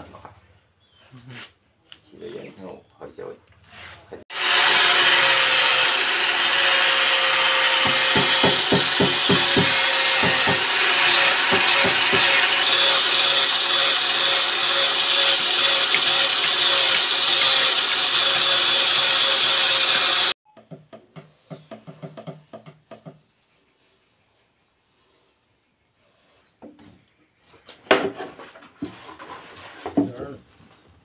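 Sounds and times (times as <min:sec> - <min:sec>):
angle grinder sanding wood: 0:03.7 - 0:20.4.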